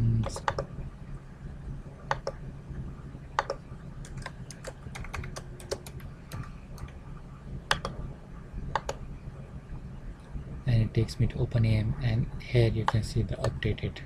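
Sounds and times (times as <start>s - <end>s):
low steady hum: 0.0s - 14.0s
keyboard typing: 0.2s - 0.7s, 2.1s - 2.4s, 3.4s - 7.0s, 7.7s - 8.0s.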